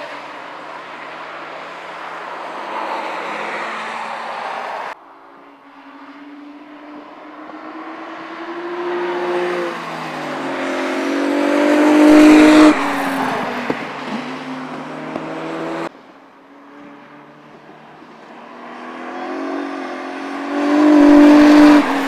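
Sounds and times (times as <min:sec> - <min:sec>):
car engine accelerating past: 0:06.0 - 0:15.9, 0:18.5 - 0:22.0.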